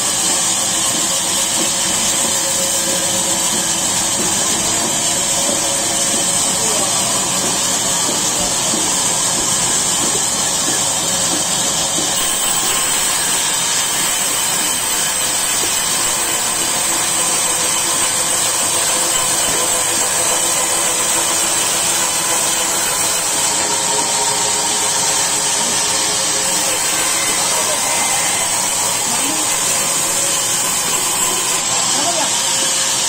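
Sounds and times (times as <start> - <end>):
band sawmill drone: 0.0 - 33.0
saw blade hissing: 0.0 - 33.0.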